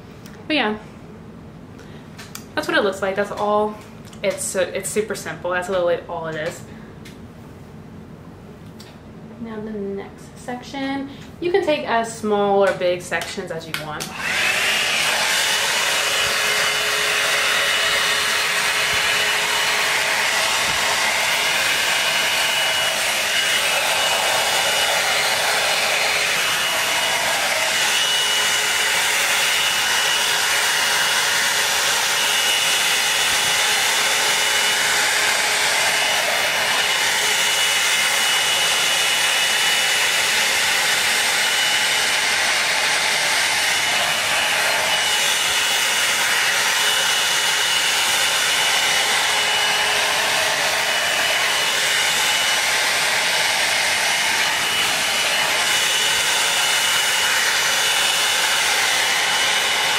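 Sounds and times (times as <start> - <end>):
hot-air brush blowing with whine: 14.0 - 59.9.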